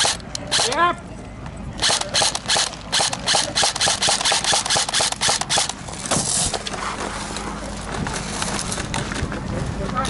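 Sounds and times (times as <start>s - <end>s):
airsoft gun firing shots: 0.0s - 0.8s, 1.8s - 5.8s.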